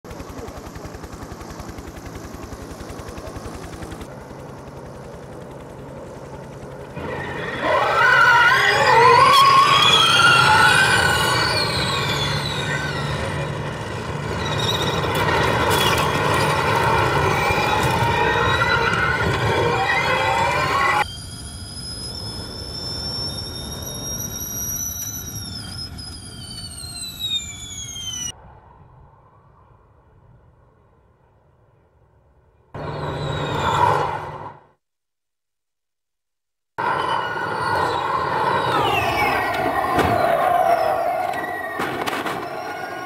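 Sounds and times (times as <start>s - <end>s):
electric race cars whining: 7.0s - 28.3s, 36.8s - 43.0s.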